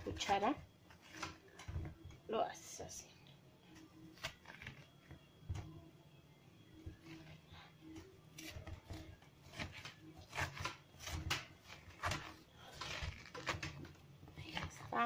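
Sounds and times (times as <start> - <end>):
spoon scraping squash flesh: 8.4 - 13.8.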